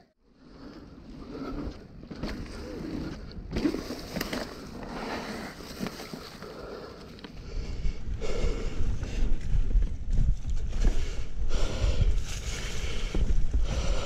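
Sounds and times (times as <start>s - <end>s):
bike rattling over bumps: 0.4s - 6.4s
wind rumble on microphone: 7.2s - 14.0s.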